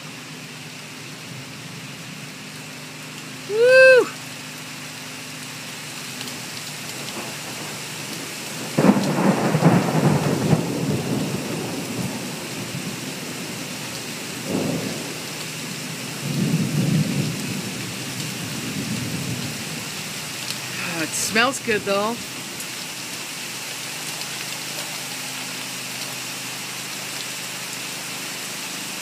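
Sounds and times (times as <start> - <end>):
heavy rain falling: 0.0 - 29.0
thunder rumbling: 7.0 - 13.6, 14.4 - 15.2, 16.2 - 20.0.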